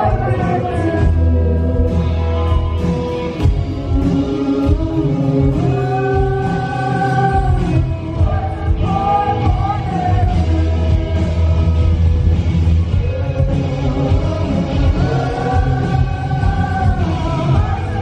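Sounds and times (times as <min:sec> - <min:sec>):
drums: 0:00.0 - 0:18.0
electric guitar: 0:00.0 - 0:18.0
person singing long notes: 0:03.7 - 0:12.2.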